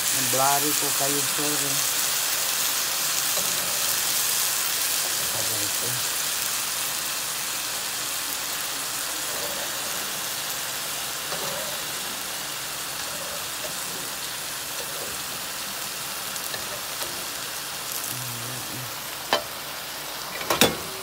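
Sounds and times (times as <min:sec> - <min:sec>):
food sizzling in a metal pot: 0:00.0 - 0:21.0.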